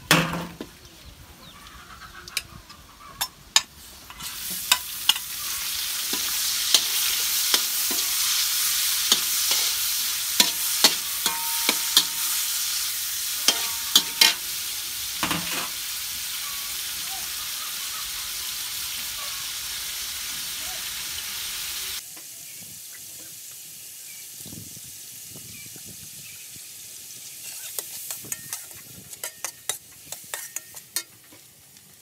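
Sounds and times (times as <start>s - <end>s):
metal spatula scraping a wok: 3.2s - 15.8s, 27.4s - 31.4s
meat sizzling in hot oil: 3.2s - 32.0s.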